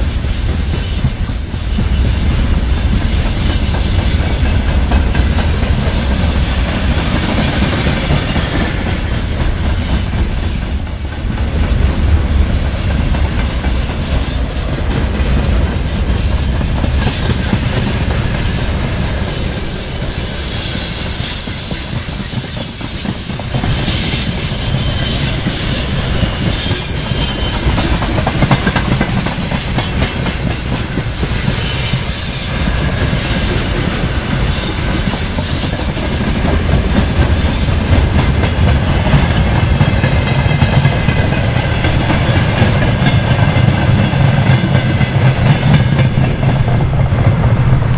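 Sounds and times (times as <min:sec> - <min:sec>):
high wheel squeals: 0:00.0 - 0:04.9, 0:08.5 - 0:11.4, 0:17.8 - 0:28.0
train wheels clattering over rail joints: 0:00.0 - 0:47.9.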